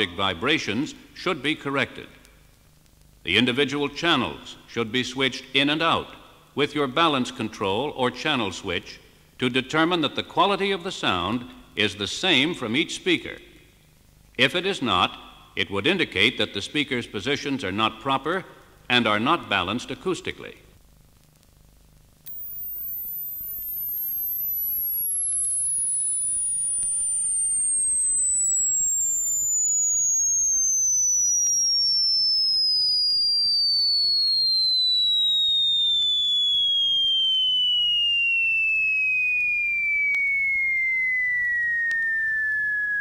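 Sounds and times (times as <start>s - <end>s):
sine wave glide tone: 22.3s - 43.0s.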